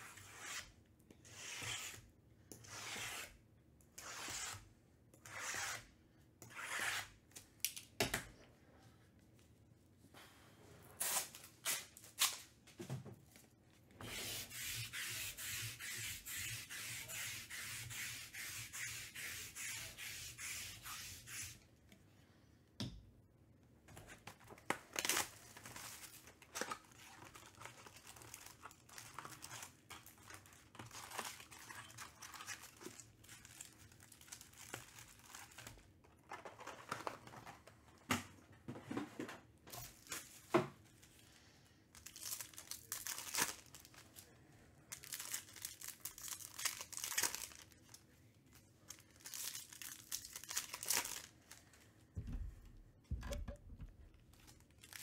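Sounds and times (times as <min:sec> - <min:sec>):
card wrappers crinkling: 0:24.6 - 0:37.4, 0:41.9 - 0:44.3, 0:44.9 - 0:51.8, 0:54.1 - 0:55.0
wrapper ripping: 0:42.0 - 0:44.3, 0:44.9 - 0:48.0, 0:48.8 - 0:51.7, 0:54.1 - 0:55.0.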